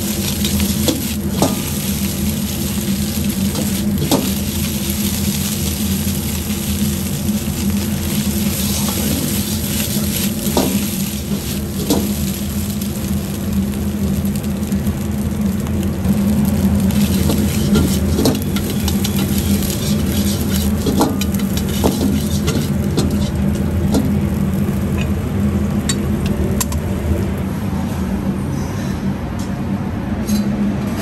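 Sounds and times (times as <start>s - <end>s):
rice sizzling and scraping: 0.0s - 27.4s
gas burner rumble: 0.0s - 31.0s
metal ladle clanking on wok: 17.2s - 24.1s.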